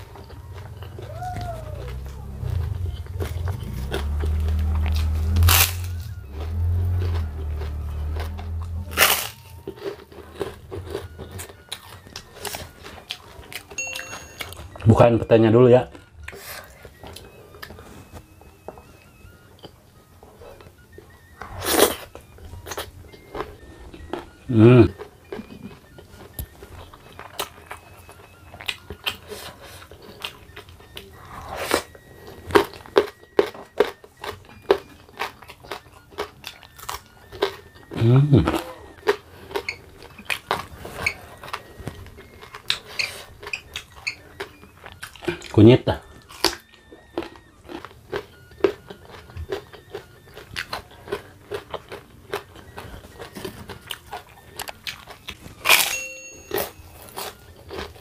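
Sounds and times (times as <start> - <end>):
low hum: 0.0 - 9.8
crunching of a crisp cracker: 1.8 - 13.8, 31.6 - 56.0.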